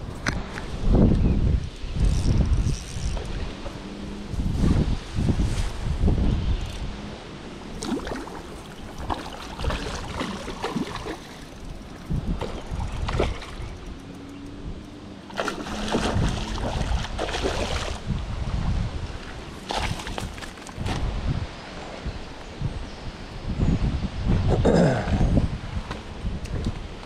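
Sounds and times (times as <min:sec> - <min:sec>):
wind rumble on microphone: 0:00.0 - 0:27.0
landing net moving through water: 0:07.7 - 0:14.2, 0:15.0 - 0:21.1
fish splashing at water surface: 0:15.3 - 0:18.0.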